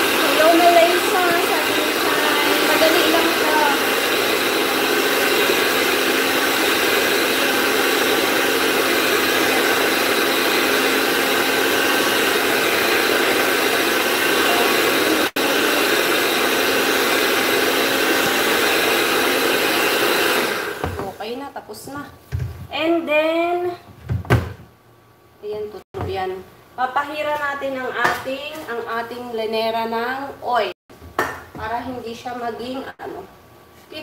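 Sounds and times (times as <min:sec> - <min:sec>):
electric mixer whirring: 0:00.0 - 0:21.2.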